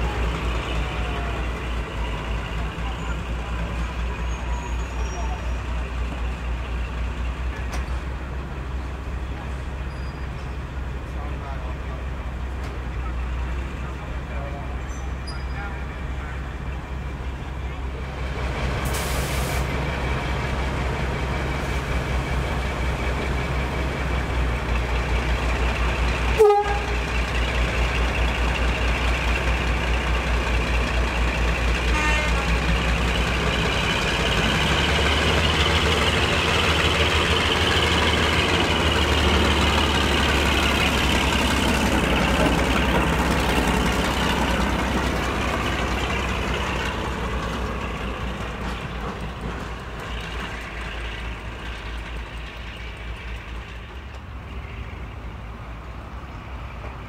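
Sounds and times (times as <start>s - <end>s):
diesel locomotive engine throb: 0.0s - 57.0s
locomotive horn toot: 26.3s - 27.1s, 31.8s - 32.6s.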